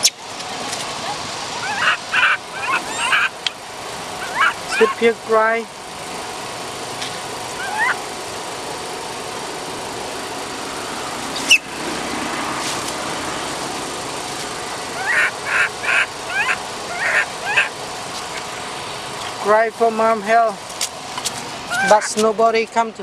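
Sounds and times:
baby monkey distress cries: 0:01.6 - 0:03.4, 0:04.2 - 0:05.0, 0:07.6 - 0:08.0, 0:15.0 - 0:17.7, 0:21.7 - 0:22.1.

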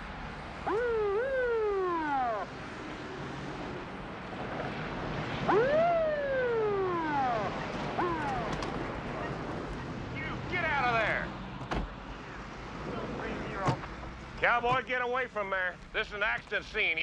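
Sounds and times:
siren whooping: 0:00.6 - 0:03.0, 0:05.4 - 0:11.0.

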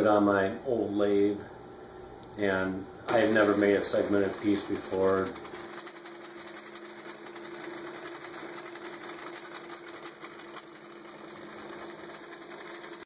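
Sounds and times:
motor humming: 0:02.9 - 0:13.0.

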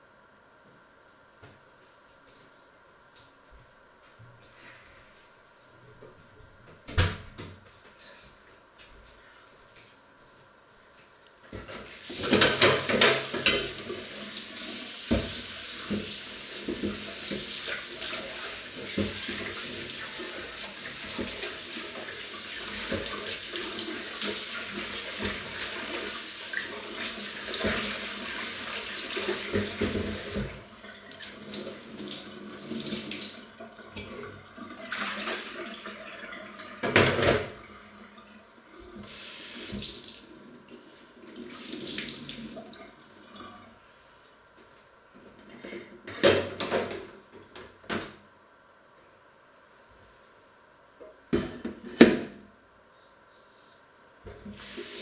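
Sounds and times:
dishes washed with sponge: 0:11.7 - 0:37.7.

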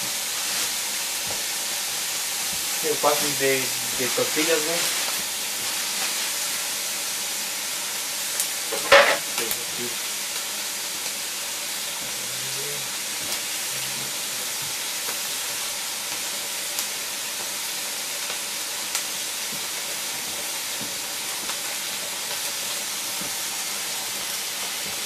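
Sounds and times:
meat sizzling in a pan: 0:00.0 - 0:25.0.

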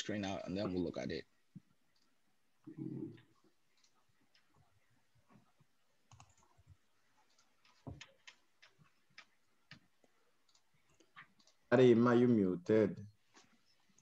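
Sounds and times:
keyboard typing clicks: 0:06.0 - 0:11.7.

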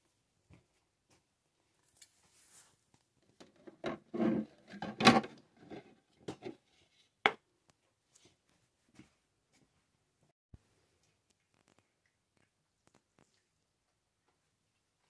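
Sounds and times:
plastic bowls clattering: 0:03.3 - 0:06.6.

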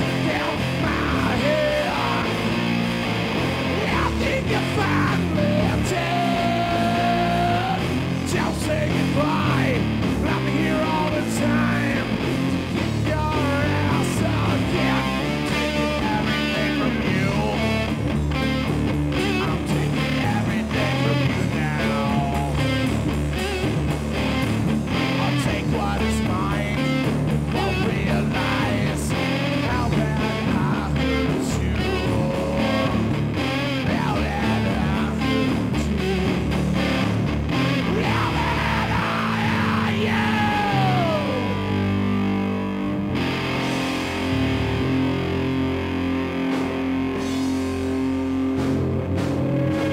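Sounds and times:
bass guitar: 0:00.0 - 0:49.9
electric guitar: 0:00.0 - 0:49.9
steady drum beat: 0:46.4 - 0:49.9.

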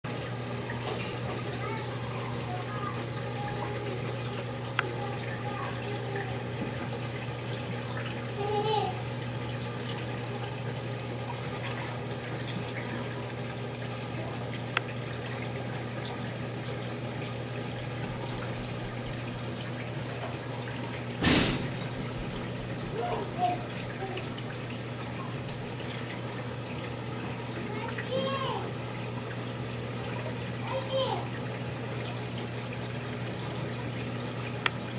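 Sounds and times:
low pump hum: 0:00.1 - 0:34.9
water trickling: 0:00.1 - 0:34.9
tick: 0:04.7 - 0:04.9.

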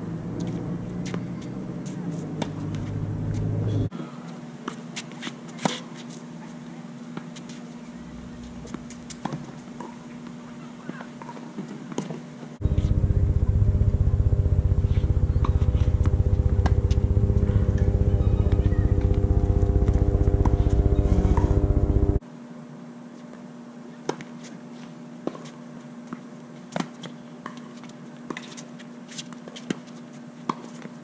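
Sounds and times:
steady low hum: 0:00.0 - 0:03.9, 0:07.9 - 0:09.4, 0:12.6 - 0:22.2
tennis balls struck by racquets: 0:00.4 - 0:03.8
loud pulsing low drone: 0:12.6 - 0:22.2.

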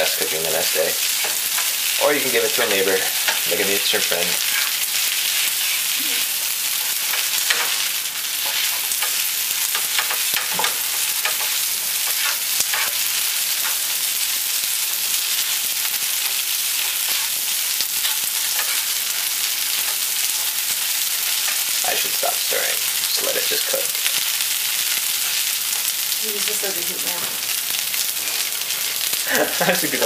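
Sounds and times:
food sizzling in a frying pan: 0:00.0 - 0:30.0
spatula scraping and tapping pan: 0:07.0 - 0:13.8, 0:18.0 - 0:21.8.

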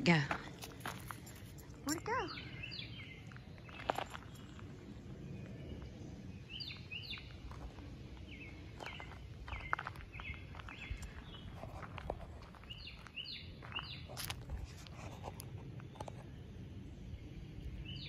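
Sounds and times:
footsteps on gravel: 0:00.0 - 0:05.9, 0:06.6 - 0:16.0
bird chirping: 0:01.2 - 0:04.7, 0:05.3 - 0:11.9, 0:12.5 - 0:14.3, 0:17.2 - 0:18.0.

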